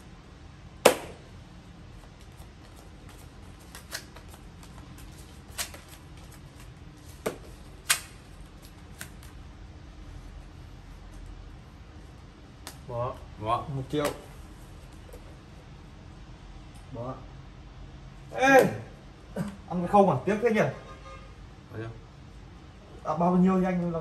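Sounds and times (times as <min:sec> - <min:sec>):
playing cards snapping and slapping: 0:00.8 - 0:01.3, 0:02.2 - 0:09.4, 0:12.6 - 0:12.9.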